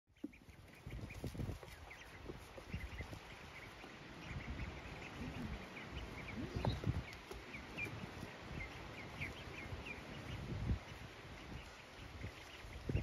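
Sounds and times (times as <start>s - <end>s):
ducklings peeping: 0.1s - 13.0s.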